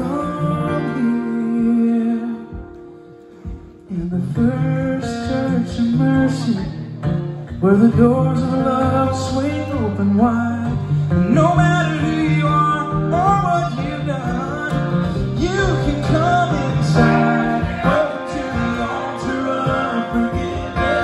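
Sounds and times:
man singing gospel song: 0:00.0 - 0:02.6, 0:03.9 - 0:06.6, 0:11.2 - 0:21.0
strummed acoustic guitars: 0:00.0 - 0:21.0.

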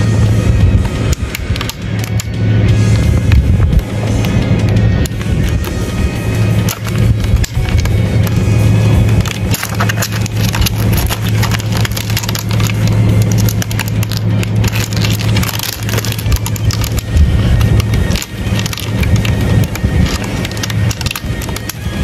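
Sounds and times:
low rumble: 0:00.0 - 0:22.0
beetles scratching and clicking on bark: 0:06.5 - 0:22.0.

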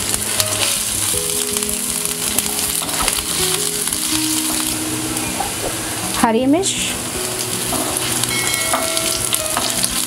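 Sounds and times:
background music: 0:00.0 - 0:10.0
garlic sizzling in hot oil: 0:00.0 - 0:10.0.

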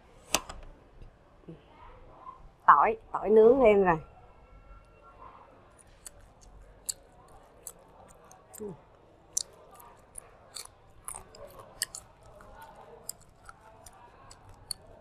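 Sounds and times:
wet chewing and mouth clicks: 0:05.7 - 0:15.0
lip smacks: 0:09.3 - 0:14.9.

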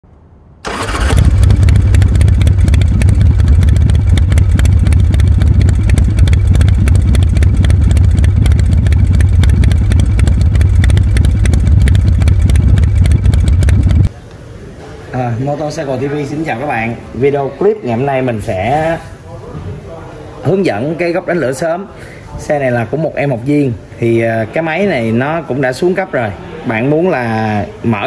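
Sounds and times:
motorcycle engine running: 0:00.7 - 0:14.1.

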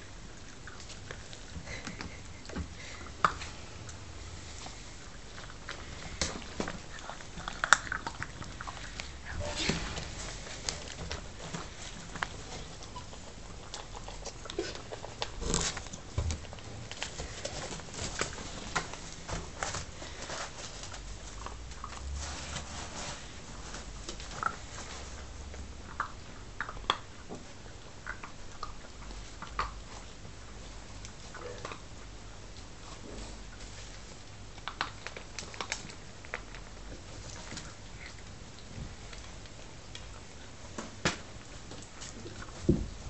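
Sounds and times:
puppies rustling in bedding: 0:00.0 - 0:25.6.

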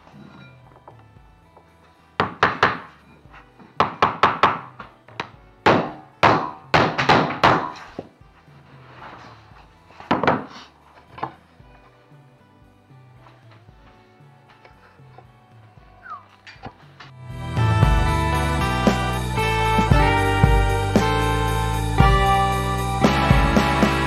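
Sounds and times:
background music: 0:00.0 - 0:24.0
hammer tapping vinyl plank: 0:02.2 - 0:02.9, 0:03.8 - 0:07.8.

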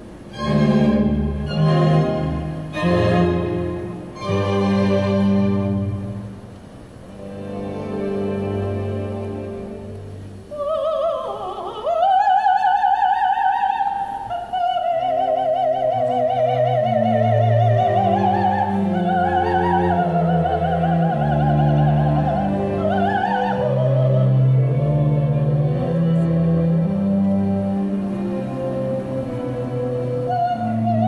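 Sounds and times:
orchestra playing: 0:00.0 - 0:10.5, 0:15.6 - 0:31.0
woman singing opera: 0:10.0 - 0:31.0.

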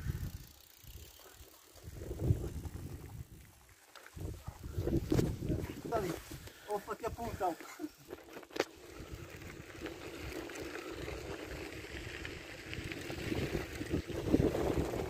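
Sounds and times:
wind noise on microphone: 0:00.0 - 0:00.5, 0:01.8 - 0:03.5, 0:04.1 - 0:06.5, 0:08.8 - 0:15.0.

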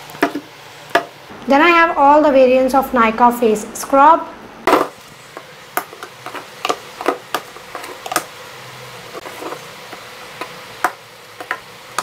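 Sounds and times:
containers clicking and tapping: 0:05.4 - 0:08.3, 0:09.2 - 0:12.0.

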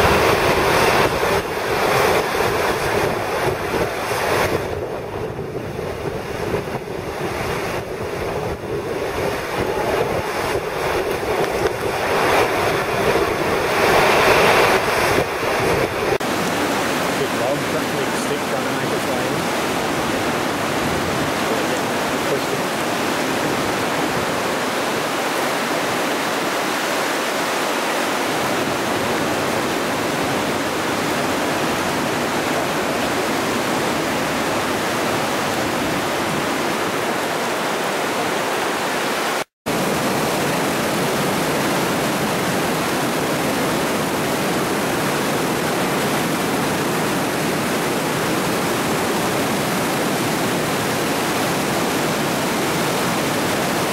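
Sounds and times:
floodwater rushing over wall: 0:00.0 - 0:53.9.

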